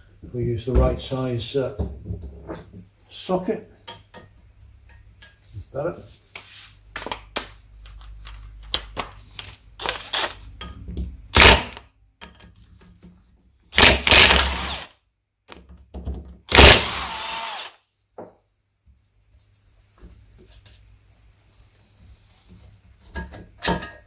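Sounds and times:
cordless impact wrench bursts: 11.4s - 11.8s, 13.8s - 14.9s, 16.5s - 17.8s.

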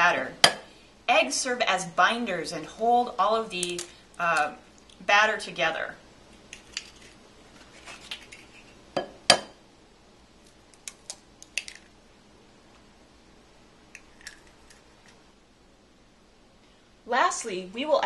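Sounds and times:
eggshell clicks breaking open: 10.7s - 11.9s, 14.0s - 14.8s.

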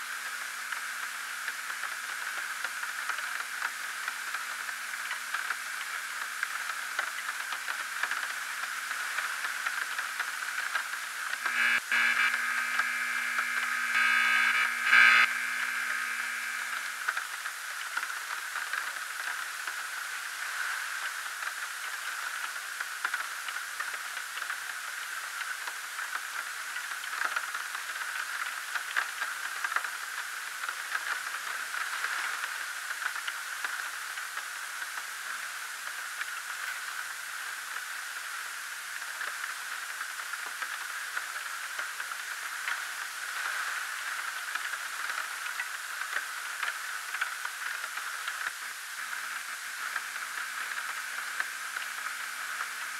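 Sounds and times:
small crackles and clicks: 0.0s - 52.9s
static hiss: 0.0s - 52.9s.

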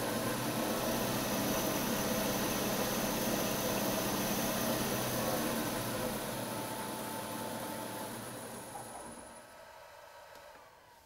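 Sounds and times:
milling machine motor hum: 0.0s - 11.0s.

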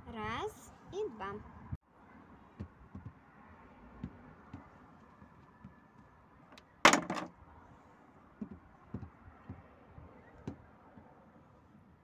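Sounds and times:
plastic toys knocking: 6.9s - 7.3s.

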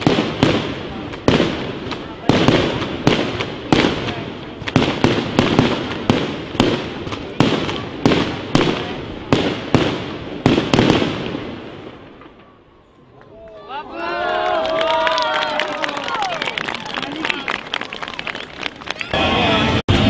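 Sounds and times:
fireworks bursting with echoing bangs: 0.0s - 12.7s.

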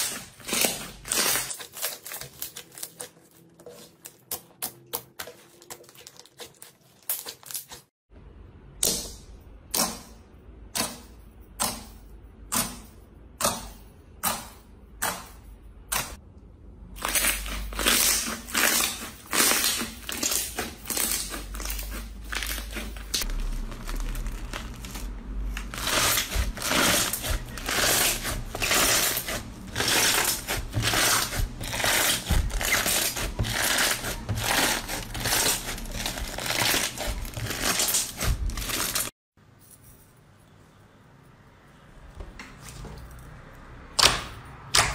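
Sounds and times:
hands squishing slime: 17.0s - 39.1s.

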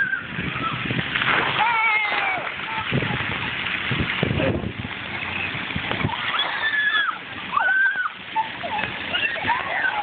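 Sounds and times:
fountain jets spraying water: 0.0s - 10.0s
children shouting: 1.6s - 3.1s, 6.0s - 10.0s.

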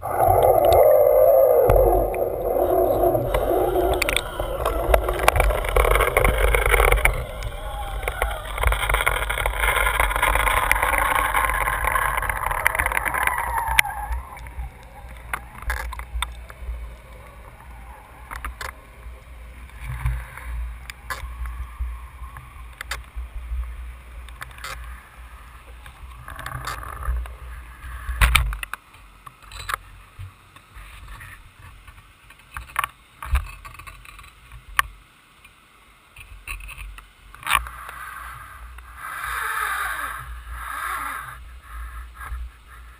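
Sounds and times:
water rushing noise: 0.0s - 28.0s
underwater rumble of moving water: 0.0s - 28.6s.

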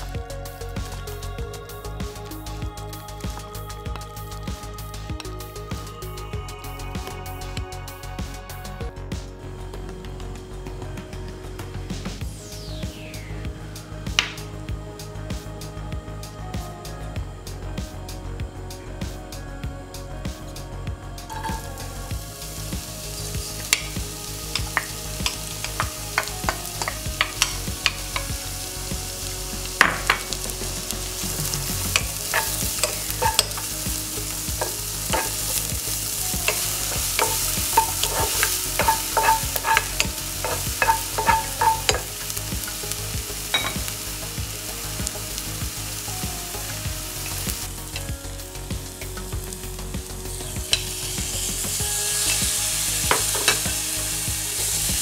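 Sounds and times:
onion sizzling in oil: 21.3s - 55.0s
wooden spatula scraping a pan: 30.0s - 43.0s.

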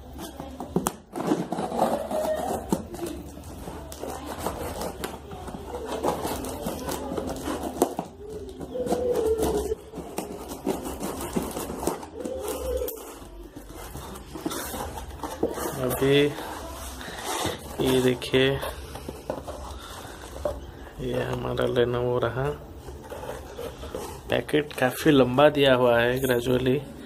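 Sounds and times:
scissors cutting packing tape: 0.0s - 17.9s.

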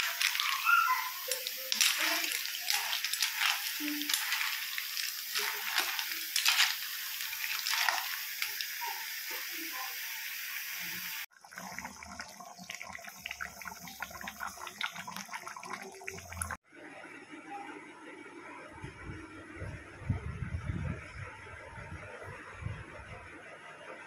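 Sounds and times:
metal ladle scraping: 0.0s - 8.6s
snails sizzling in a pan: 0.0s - 16.5s.

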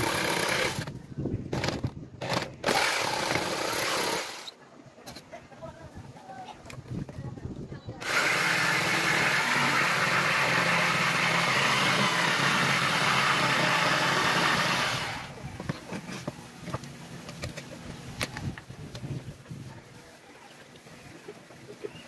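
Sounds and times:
jigsaw cutting plywood: 0.0s - 0.9s, 1.5s - 4.5s, 8.0s - 15.4s.

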